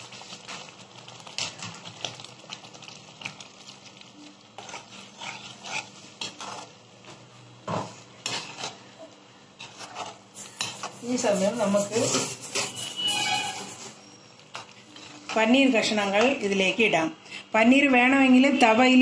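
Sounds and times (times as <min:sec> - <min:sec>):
metal spatula scraping a pan: 0:03.6 - 0:06.8, 0:07.8 - 0:16.6.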